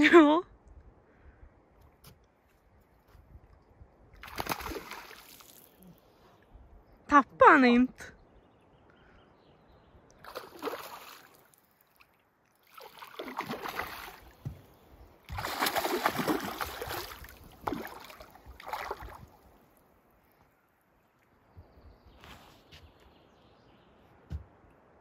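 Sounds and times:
fish splashing at water surface: 4.2s - 5.7s, 10.2s - 12.0s, 12.6s - 14.4s, 15.3s - 19.4s.

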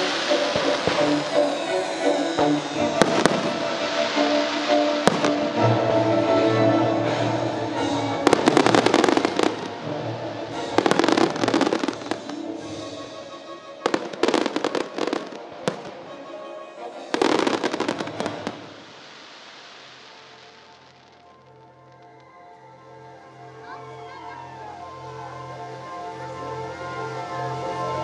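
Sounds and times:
fireworks bangs and crackles: 0.0s - 6.0s, 7.2s - 16.4s, 17.0s - 22.0s
low hiss: 0.0s - 7.2s, 16.9s - 22.3s.

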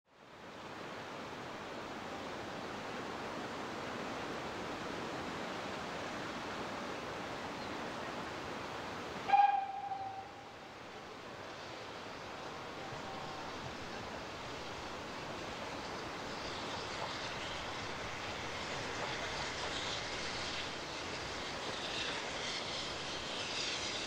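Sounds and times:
steam locomotive whistle: 9.3s - 10.6s
steady rushing noise: 10.3s - 24.0s.

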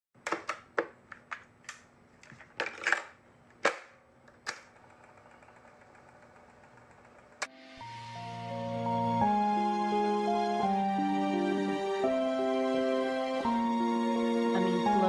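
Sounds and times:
sharp clicks and knocks: 0.2s - 4.8s.

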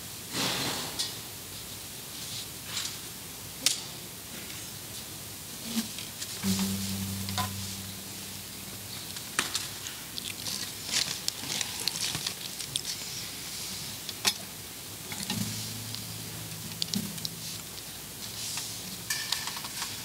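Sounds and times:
soft steady hiss: 0.0s - 20.0s
metal vessels clinking: 6.4s - 9.1s
faint low steady tone: 6.4s - 9.4s, 15.3s - 17.7s.

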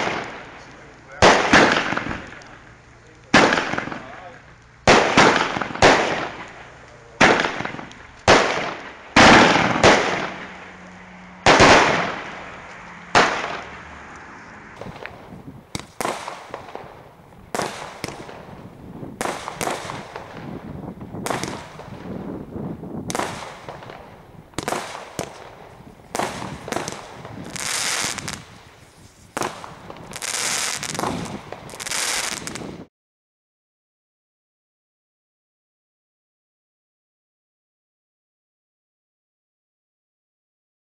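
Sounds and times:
loud firework shots: 0.0s - 14.1s, 14.8s - 32.9s
crackling firework bursts: 0.0s - 32.9s.

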